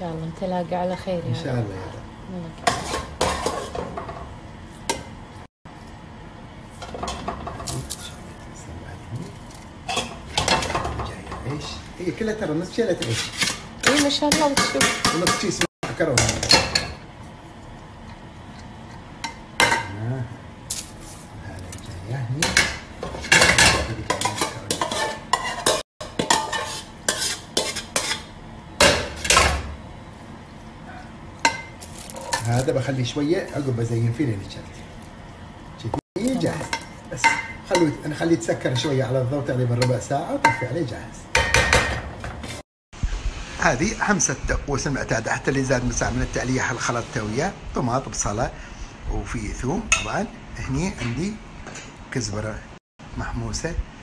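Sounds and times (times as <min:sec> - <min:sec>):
metal ladle scraping cooking pot: 0:13.0 - 0:14.2, 0:22.5 - 0:28.3.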